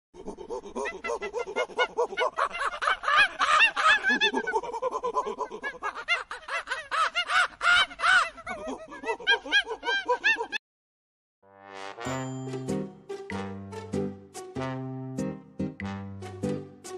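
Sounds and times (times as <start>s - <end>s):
macaques squealing and cooing: 0.2s - 10.6s.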